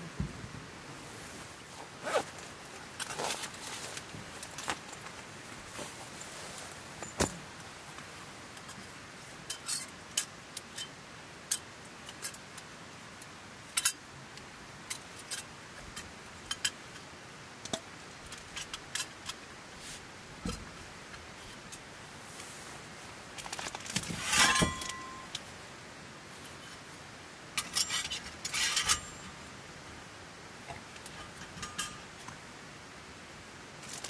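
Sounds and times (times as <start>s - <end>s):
utensils clicking and clattering: 23.4s - 25.4s
ringing metal clinks: 24.3s - 25.4s.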